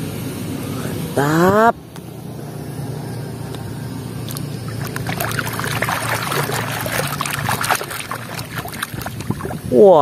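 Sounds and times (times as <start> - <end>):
toy scrubbed in muddy water: 4.3 - 9.8.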